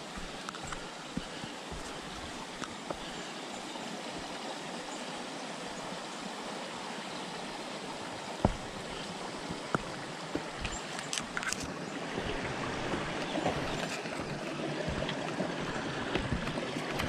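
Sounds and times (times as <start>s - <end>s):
footsteps on dirt: 0.0s - 4.4s, 8.3s - 17.0s
creek flowing: 0.0s - 17.0s.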